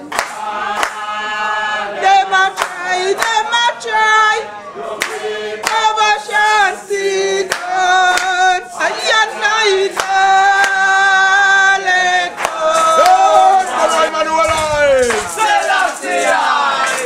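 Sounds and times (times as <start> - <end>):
hand claps: 0.0 - 1.1, 2.4 - 3.5, 5.0 - 17.0
congregation singing a hymn: 0.0 - 17.0
woman singing: 2.0 - 4.5, 5.6 - 13.1.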